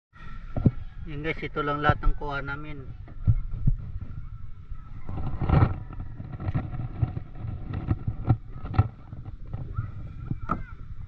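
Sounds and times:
low rumbling: 0.2s - 11.0s
water slapping boat hull: 2.0s - 11.0s
knocks on wooden boat: 10.3s - 10.8s.

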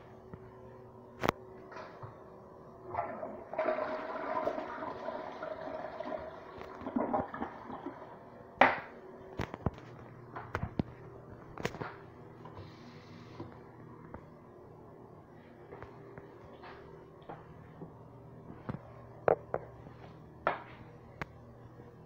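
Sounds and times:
toilet flushing: 2.9s - 8.3s.

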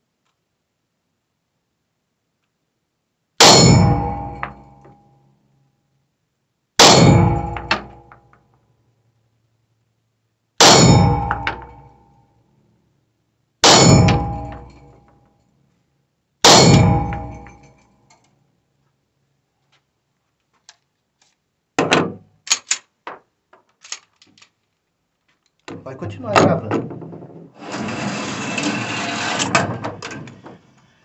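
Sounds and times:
pistol shots echoing indoors: 6.8s - 8.2s, 10.6s - 11.9s
metallic clacks of pistol handling: 22.4s - 25.8s.

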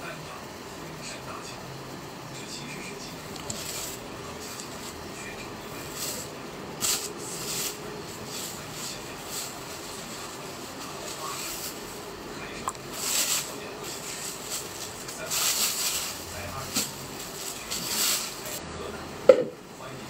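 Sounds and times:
plastic bags rustling: 5.7s - 12.1s, 12.8s - 18.6s.

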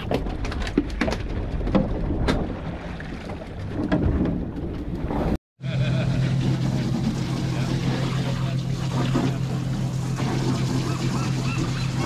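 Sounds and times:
water against boat hull: 0.0s - 5.4s.

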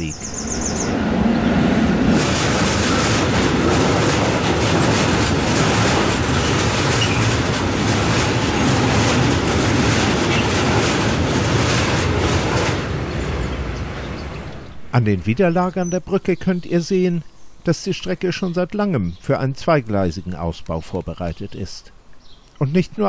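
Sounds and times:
train wheels clattering on bridge: 1.5s - 14.1s.

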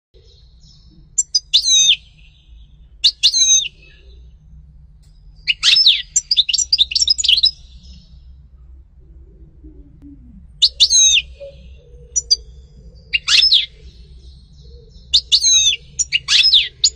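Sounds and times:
finch twittering: 0.2s - 4.3s, 5.4s - 8.2s, 10.6s - 16.9s.

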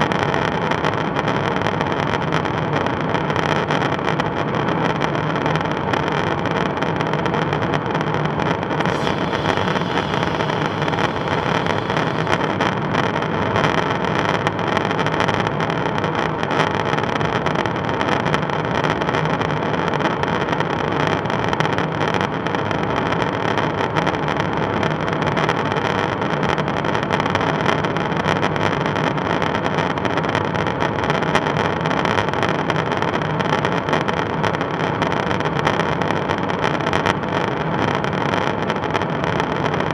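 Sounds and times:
jet engine drone in cabin: 8.5s - 14.7s
faint steady tones: 8.8s - 13.3s.

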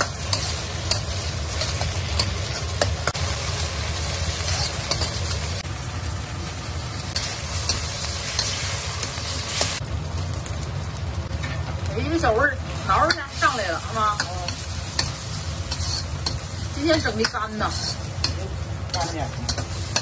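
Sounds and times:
metal ladle scraping wok: 0.0s - 5.6s, 12.8s - 20.0s
egg sizzling in a wok: 0.0s - 20.0s.

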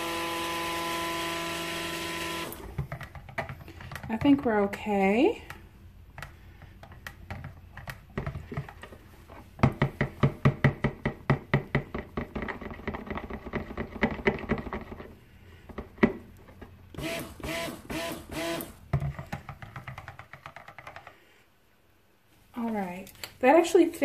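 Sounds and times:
stick blender buzzing: 0.0s - 3.0s, 16.9s - 18.8s.

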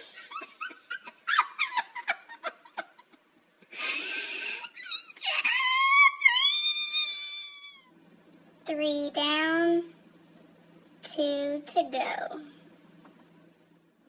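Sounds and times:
person sniffing and sobbing: 3.6s - 4.8s
high wail: 5.2s - 7.9s.

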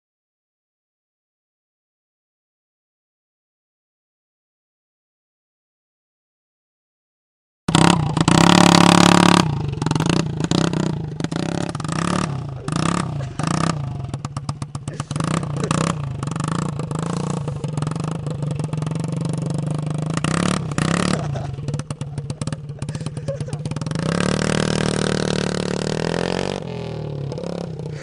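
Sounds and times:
scooter engine raw clatter: 7.7s - 28.0s.

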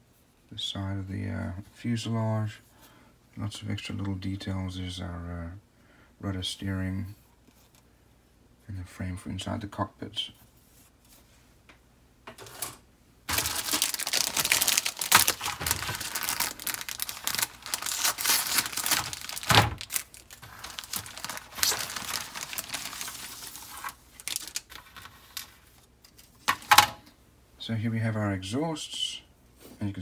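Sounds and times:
plastic bag crinkling: 13.3s - 25.6s.

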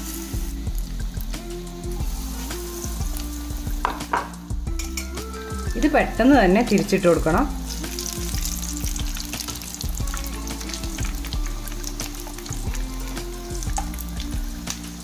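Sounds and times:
background music: 0.0s - 15.0s
food deep-frying in oil: 0.0s - 15.0s
metal spoon in pan: 3.8s - 5.2s.

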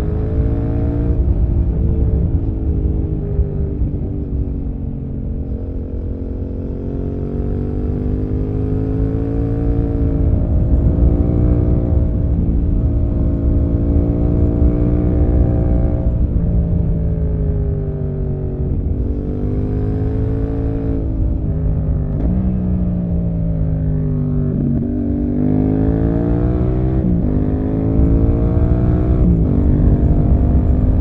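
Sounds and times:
motorcycle engine revving: 17.6s - 31.0s.

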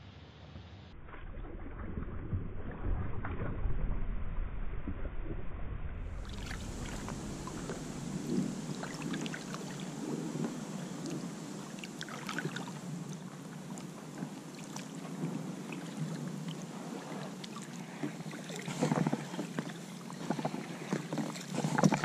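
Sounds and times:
low rumble: 0.9s - 11.9s
paddle splashing in water: 6.1s - 22.0s
water dripping off paddle: 6.2s - 22.0s.

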